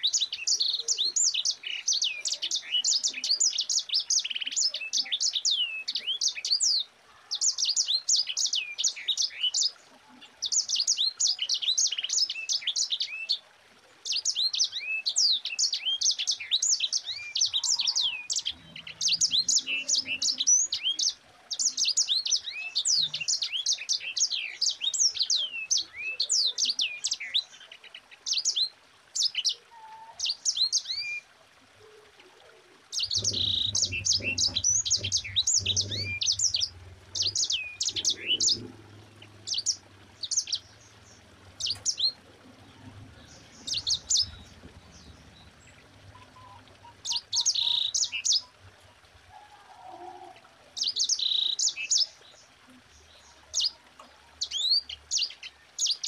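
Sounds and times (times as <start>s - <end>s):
finch singing twittering song: 0.0s - 9.8s, 14.0s - 27.6s, 32.9s - 48.6s, 50.8s - 52.4s, 54.4s - 56.0s.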